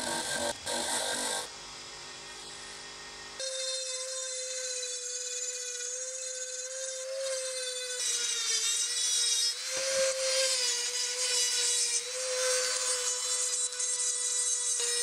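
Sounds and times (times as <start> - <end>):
grinding stone hiss on metal: 0.0 - 1.5
rotary tool high whine: 0.0 - 15.0.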